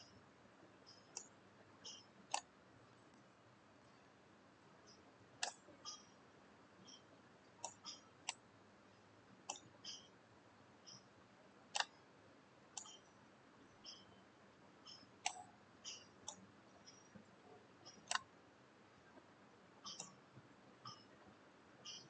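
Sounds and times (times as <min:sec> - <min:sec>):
computer mouse clicking: 0:01.9 - 0:02.5, 0:11.8 - 0:12.0, 0:19.9 - 0:20.2
faint high-pitched blips: 0:12.8 - 0:18.3, 0:20.8 - 0:22.0.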